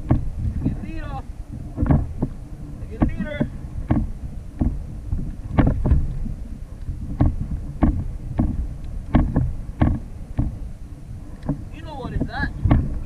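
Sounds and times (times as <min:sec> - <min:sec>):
wind rumble on microphone: 0:00.0 - 0:13.0
knocks on plastic kayak: 0:01.8 - 0:02.3, 0:03.0 - 0:04.8, 0:07.2 - 0:10.6, 0:12.6 - 0:13.0.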